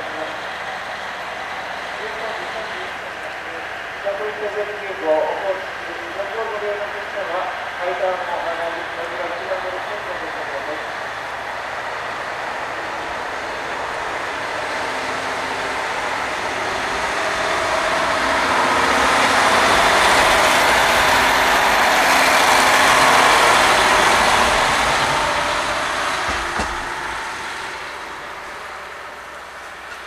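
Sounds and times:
diesel railcar passing: 0:00.0 - 0:30.0
short knock: 0:26.2 - 0:27.4.

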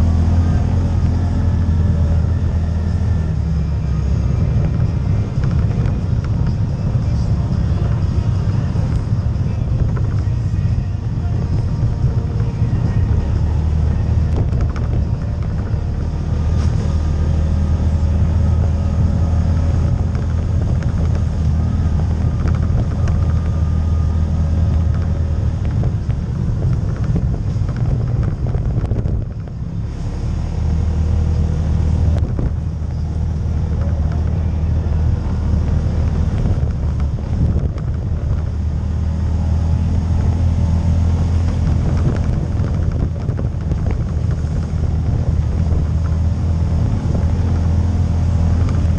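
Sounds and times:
atv engine running: 0:00.0 - 0:48.9.

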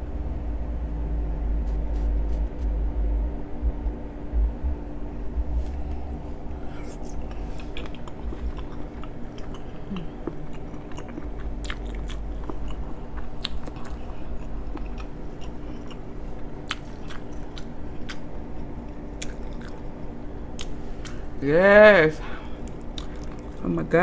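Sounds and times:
faint steady hum: 0:00.0 - 0:24.0
person chewing: 0:05.6 - 0:21.4, 0:22.2 - 0:23.7.

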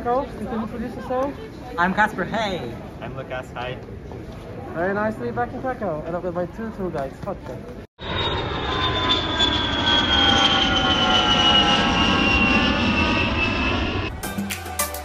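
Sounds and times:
jet engines whining: 0:08.0 - 0:14.3.

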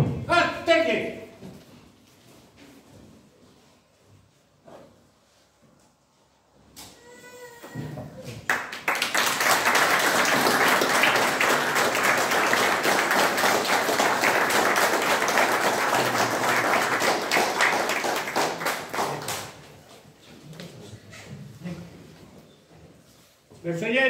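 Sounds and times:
audience applauding: 0:08.4 - 0:19.7.

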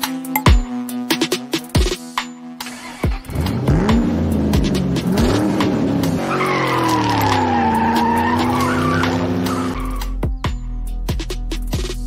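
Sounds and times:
car engine revving: 0:02.7 - 0:10.1
tyre screech: 0:06.2 - 0:10.1.

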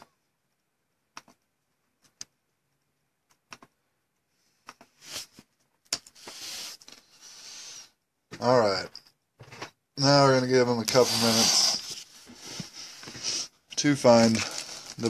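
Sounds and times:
faint clicks and taps: 0:00.0 - 0:07.0.

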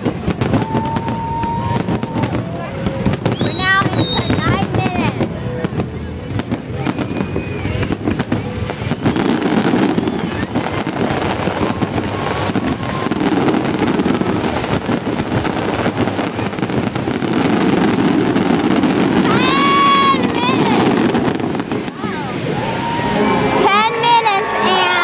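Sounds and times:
fireworks bangs and crackles: 0:00.0 - 0:25.0.

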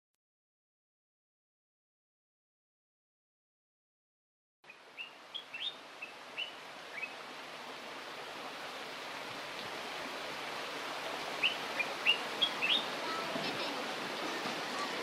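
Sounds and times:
bird chirps: 0:04.7 - 0:07.2, 0:11.4 - 0:12.9
steady background hiss: 0:04.7 - 0:15.0.

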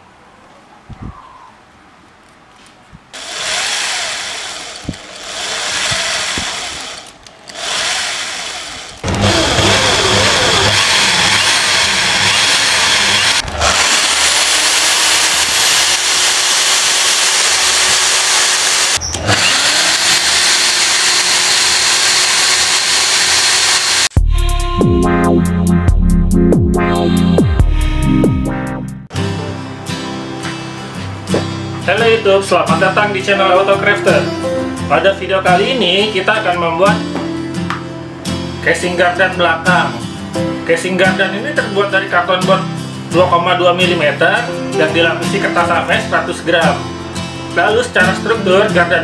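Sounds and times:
electric drill whining: 0:03.2 - 0:24.2
electronic music: 0:24.2 - 0:29.1.

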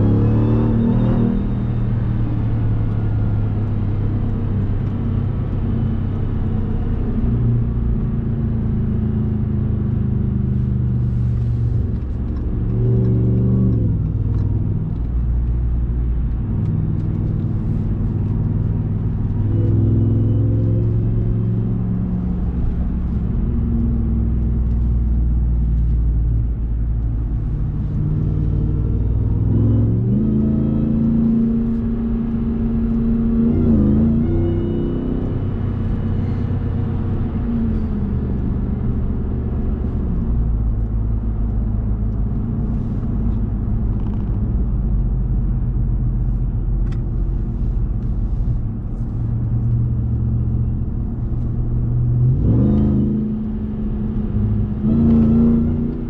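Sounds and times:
truck engine revving while driving: 0:00.0 - 0:56.0.

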